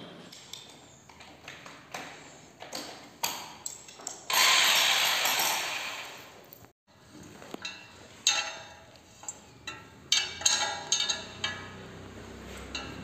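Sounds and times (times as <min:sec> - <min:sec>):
hand tool clinking on metal bolts: 0:00.4 - 0:05.7, 0:07.5 - 0:13.0.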